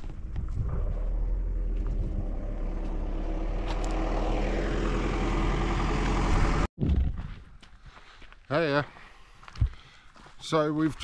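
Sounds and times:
vehicle engine rumbling: 0:00.0 - 0:07.2.

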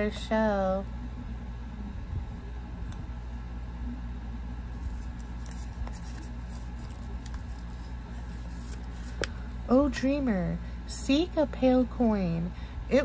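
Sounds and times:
steady low hum: 0:00.0 - 0:13.0
paper note crinkling: 0:04.8 - 0:09.3.

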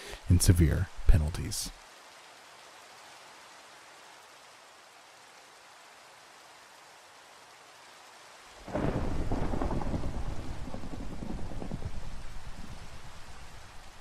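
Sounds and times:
steady rain: 0:00.0 - 0:14.0
thunder rolling: 0:08.7 - 0:13.4.

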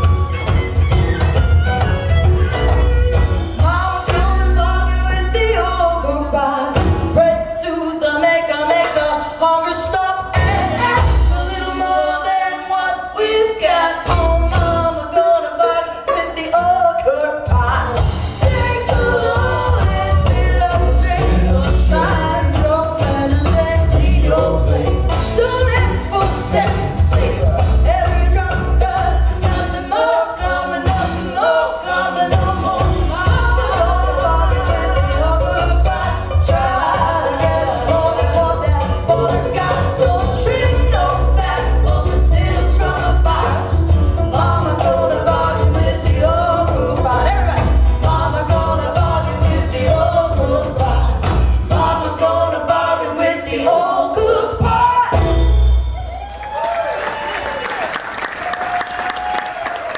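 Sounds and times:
fiddle: 0:00.0 - 0:04.4
banjo: 0:00.0 - 0:55.9
acoustic guitar: 0:00.0 - 0:56.3
woman singing lead: 0:00.0 - 0:57.9
drums: 0:00.0 - 0:59.9
harmony vocals: 0:03.6 - 0:55.6.

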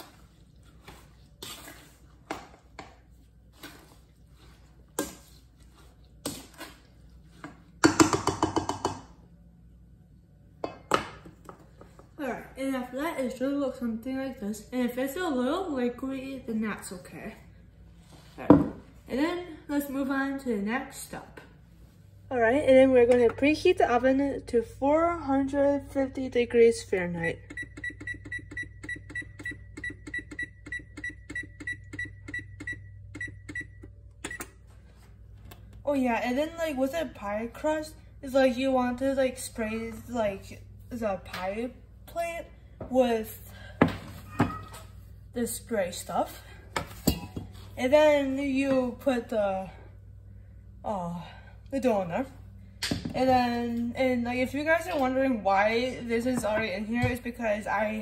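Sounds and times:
low steady hum: 0:00.0 - 0:58.0
spatula knocking on metal bowl: 0:07.8 - 0:09.1
oven control panel beeping: 0:27.1 - 0:34.6.

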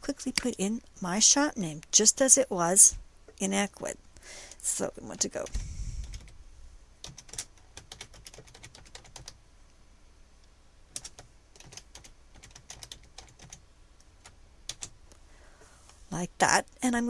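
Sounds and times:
soft keyboard typing: 0:05.1 - 0:06.3, 0:07.0 - 0:09.4, 0:10.9 - 0:15.0.

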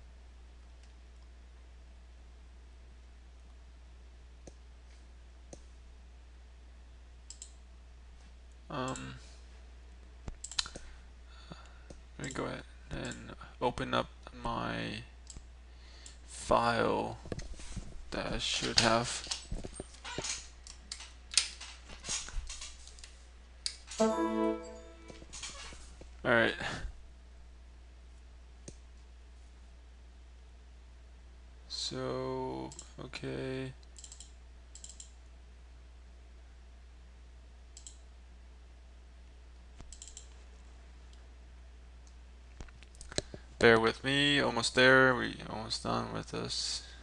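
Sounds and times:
low steady hum: 0:00.0 - 0:47.0
computer mouse clicks: 0:07.3 - 0:07.6, 0:10.3 - 0:10.9, 0:15.2 - 0:16.2, 0:33.8 - 0:35.2, 0:37.8 - 0:38.0, 0:39.8 - 0:40.4.

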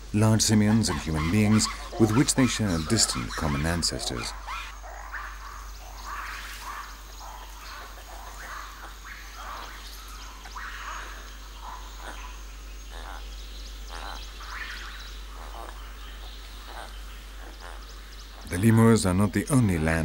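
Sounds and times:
animals chirping: 0:00.0 - 0:20.0.

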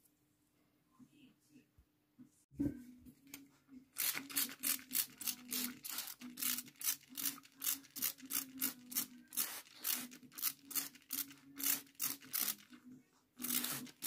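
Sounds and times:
spray bottle squirts: 0:08.0 - 0:12.6, 0:13.4 - 0:14.0.

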